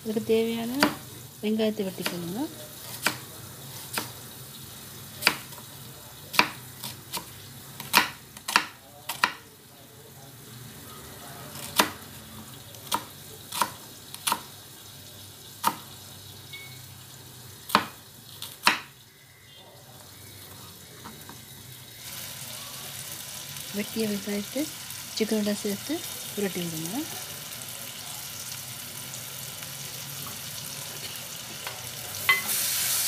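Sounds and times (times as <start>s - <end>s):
knife chopping on wooden board: 0.8s - 1.0s, 2.9s - 3.2s, 6.3s - 9.4s, 17.7s - 18.9s.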